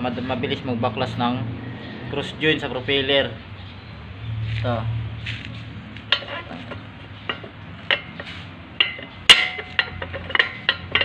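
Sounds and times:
metal joint parts clinking: 0:06.0 - 0:11.0.

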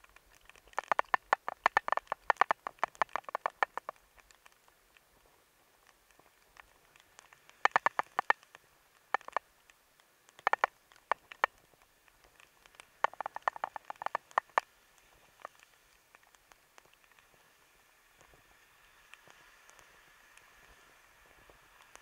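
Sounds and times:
sharp clicks and taps: 0:00.0 - 0:05.0, 0:05.8 - 0:09.4, 0:10.0 - 0:14.7.

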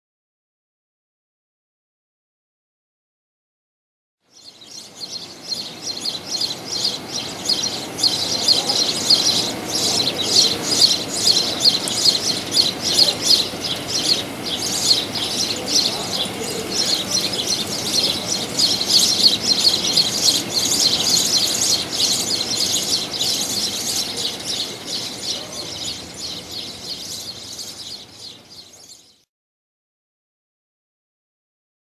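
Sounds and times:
flock of small birds chirping: 0:04.3 - 0:29.3.

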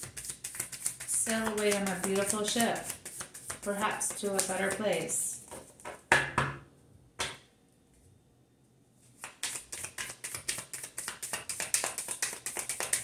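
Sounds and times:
cards being shuffled: 0:00.0 - 0:03.7, 0:09.2 - 0:13.0.

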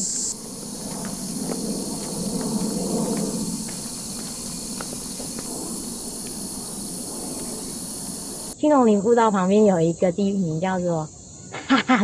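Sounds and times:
cicadas buzzing: 0:00.0 - 0:11.5
low rumble: 0:00.3 - 0:08.6.

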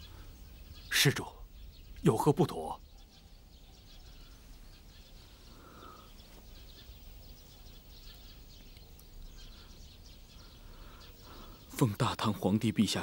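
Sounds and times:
small birds chirping: 0:00.0 - 0:13.0.

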